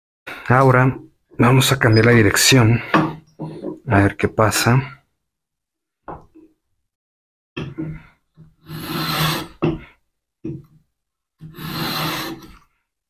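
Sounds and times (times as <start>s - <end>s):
hand plane shearing wood: 8.6s - 9.6s, 11.4s - 12.6s.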